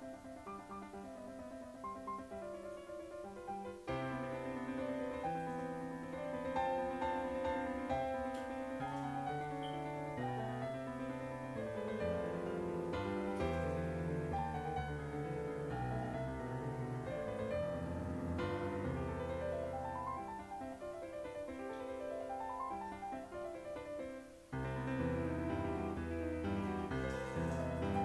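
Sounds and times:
slow gentle piano music: 0:00.0 - 0:28.0.

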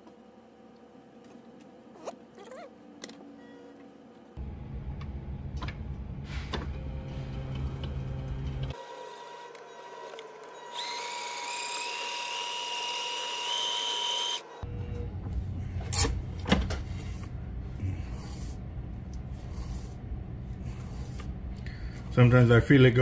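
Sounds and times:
electric motor whirring: 0:08.0 - 0:14.7.

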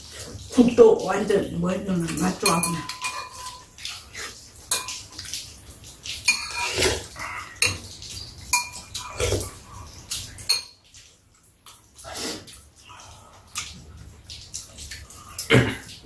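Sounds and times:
utensils clinking against bowls: 0:02.0 - 0:03.8, 0:04.7 - 0:05.2, 0:06.2 - 0:07.9, 0:08.5 - 0:09.6, 0:10.4 - 0:10.8.

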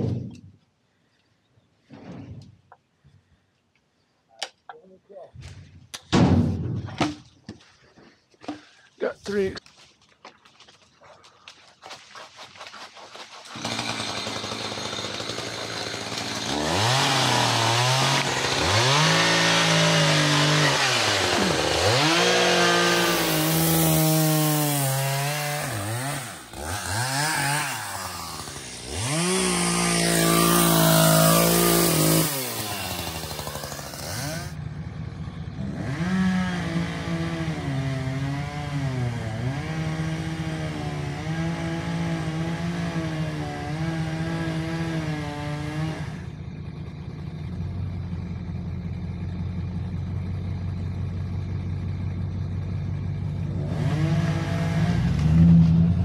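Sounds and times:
chainsaw revving and cutting: 0:13.5 - 0:34.6, 0:35.6 - 0:46.4, 0:53.6 - 0:56.0
truck engine from inside cab: 0:45.4 - 0:56.0.

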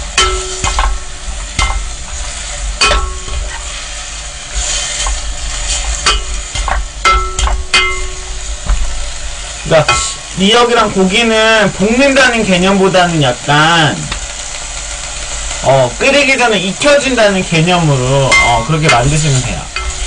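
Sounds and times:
meat sizzling in a pot: 0:00.0 - 0:20.0
spatula stirring and scraping: 0:00.2 - 0:07.9.

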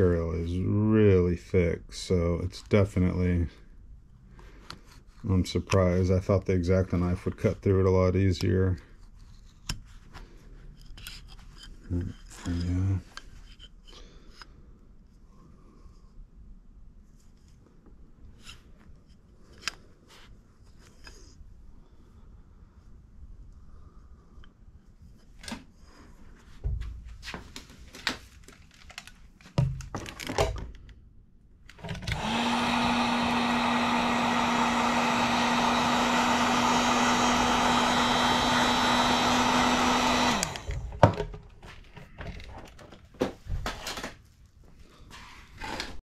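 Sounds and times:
heat gun blowing: 0:32.0 - 0:40.9.

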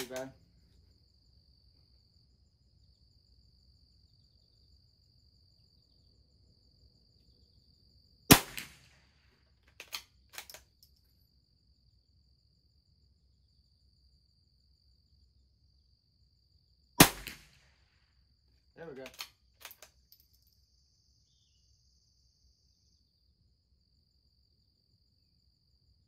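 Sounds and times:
rifle bolt clicks: 0:00.0 - 0:00.3, 0:09.7 - 0:11.0, 0:19.0 - 0:20.3
rifle shot: 0:00.0 - 0:00.3, 0:08.3 - 0:10.6, 0:17.0 - 0:17.8.

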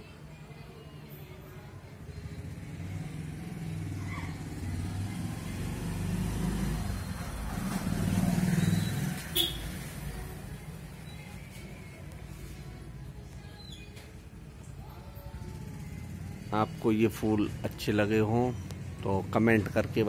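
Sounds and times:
vehicle engine rumble passing: 0:02.0 - 0:11.9.

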